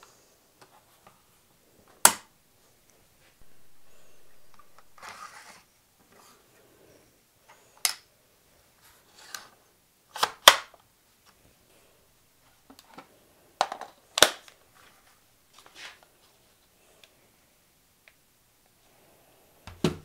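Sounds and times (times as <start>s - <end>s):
plastic snaps: 2.0s - 2.3s, 10.1s - 10.8s, 13.6s - 14.6s.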